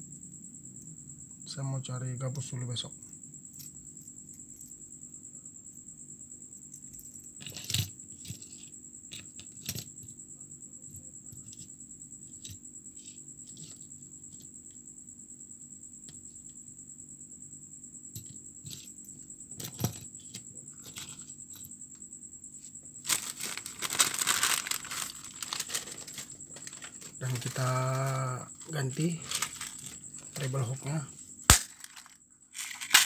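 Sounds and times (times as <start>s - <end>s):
loud rustling handling noise: 23.0s - 30.9s, 31.5s - 33.0s.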